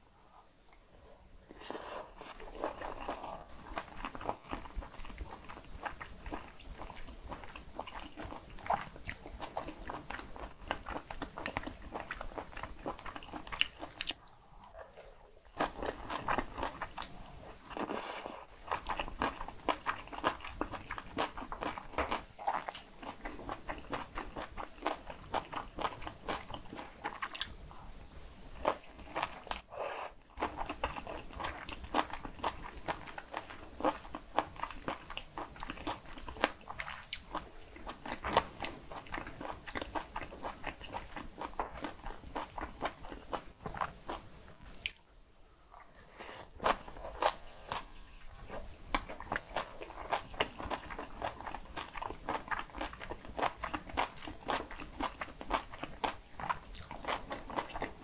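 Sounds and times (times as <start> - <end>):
chewing and crunching food: 0.3 - 27.9, 28.5 - 45.0, 45.7 - 58.0.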